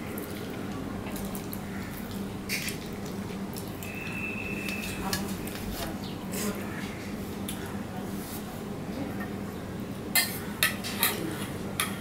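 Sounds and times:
thin high tone: 0:03.8 - 0:05.2.

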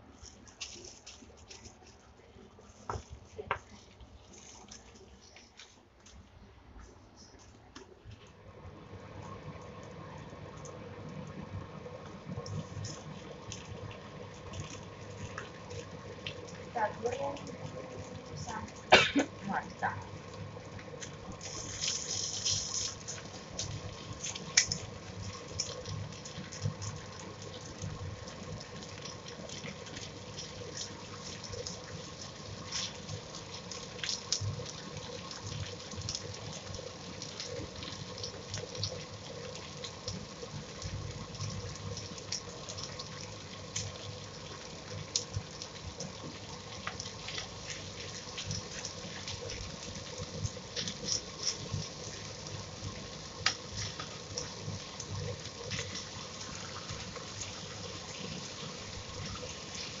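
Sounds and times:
meat sizzling in hot oil: 0:08.9 - 1:00.0
sharp crackling pops: 0:20.9 - 0:25.8.

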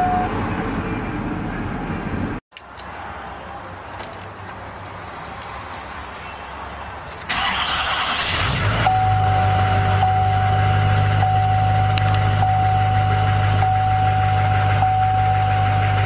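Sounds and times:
diesel engine starting and idling: 0:07.2 - 0:16.0.

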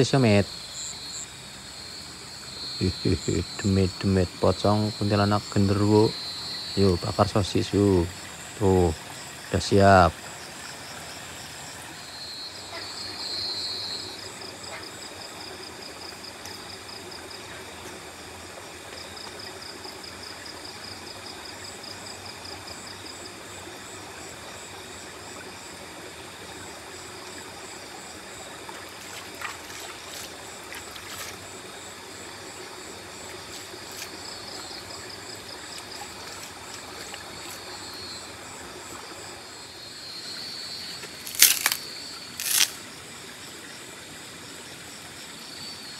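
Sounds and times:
river water running over rocks: 0:00.0 - 0:21.1, 0:21.7 - 0:45.9
night insects trilling: 0:00.0 - 0:45.9.

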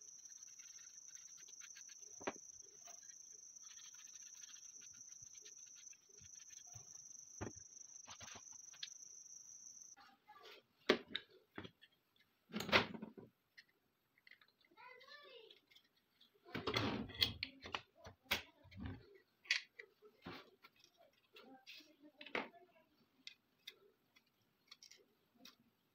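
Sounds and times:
cloth dabbing and rubbing: 0:00.0 - 0:08.7.

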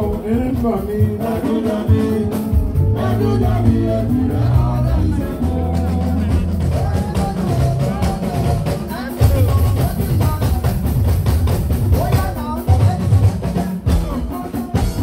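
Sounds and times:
person singing: 0:00.0 - 0:11.0
heavy bass: 0:00.0 - 0:15.0
steady drum beat: 0:00.0 - 0:15.0.

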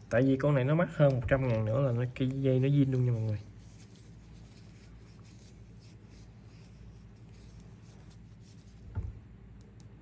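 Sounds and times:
scratchy rubbing and handling: 0:01.4 - 0:09.0.

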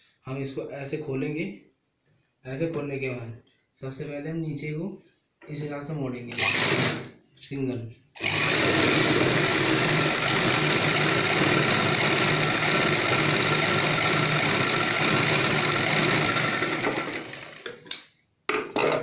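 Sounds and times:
sewing machine running: 0:06.3 - 0:07.1, 0:08.2 - 0:17.8.

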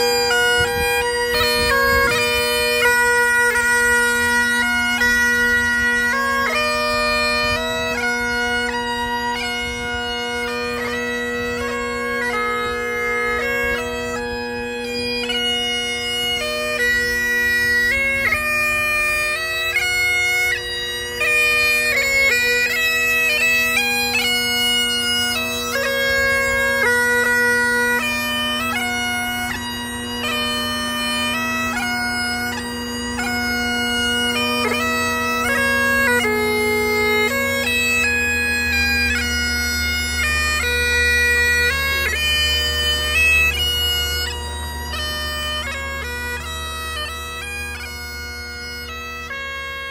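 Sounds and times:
bagpipes playing: 0:00.0 - 0:49.9.

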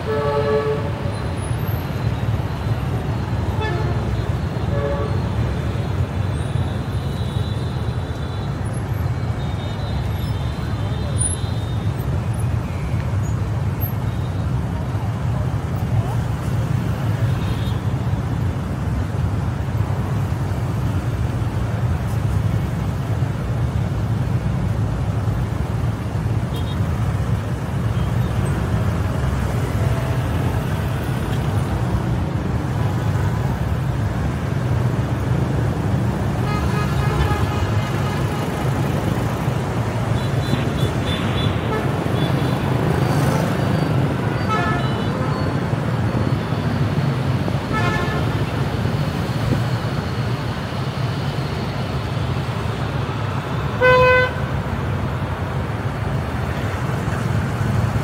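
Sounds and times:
traffic rumble: 0:00.0 - 0:58.0
car horn toots: 0:53.8 - 0:54.4.

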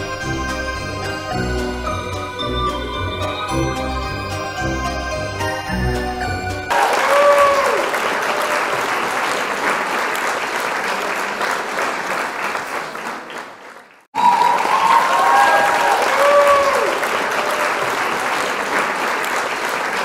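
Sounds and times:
crowd applause with cheering: 0:06.2 - 0:20.0.

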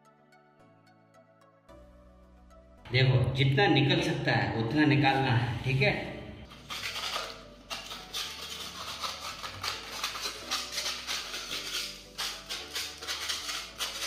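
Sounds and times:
putty knife scraping paint off wall: 0:06.8 - 0:14.0.

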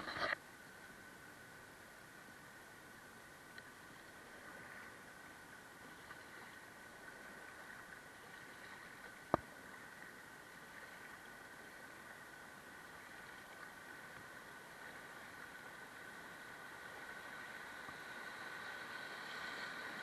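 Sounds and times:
river water rushing: 0:04.2 - 0:20.0.

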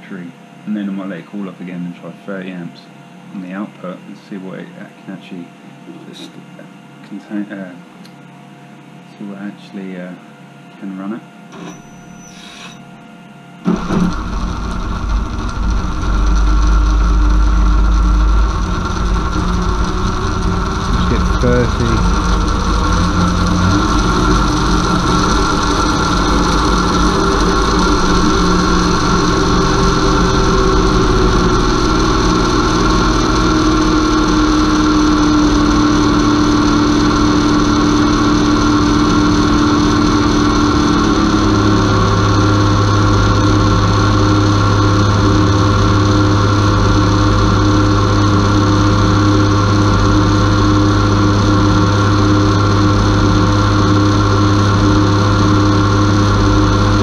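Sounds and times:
deeper hum: 0:00.0 - 0:57.0
electric motor hum and whine: 0:00.0 - 0:57.0.

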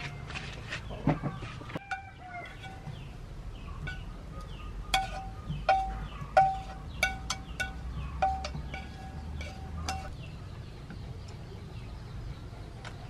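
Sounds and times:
hard objects clinking: 0:03.8 - 0:10.2.

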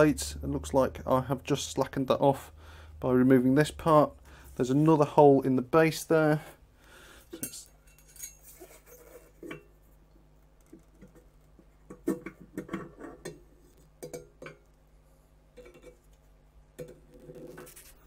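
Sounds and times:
metallic clinks and scrapes: 0:07.4 - 0:09.6.

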